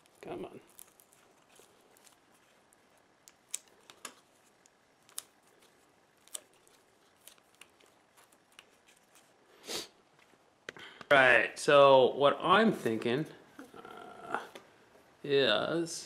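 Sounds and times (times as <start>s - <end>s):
tape crinkling and clicking: 0.0s - 9.4s.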